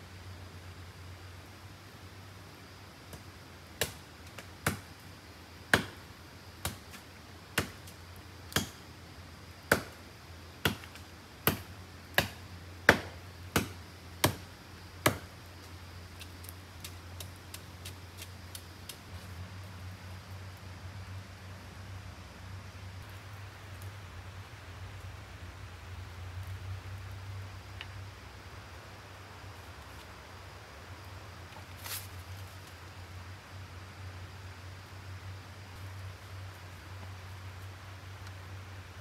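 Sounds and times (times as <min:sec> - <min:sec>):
tool chopping wood: 0:04.6 - 0:04.9, 0:05.7 - 0:06.0, 0:07.6 - 0:07.8, 0:08.5 - 0:08.8, 0:09.7 - 0:10.0, 0:10.6 - 0:14.4, 0:15.0 - 0:15.3.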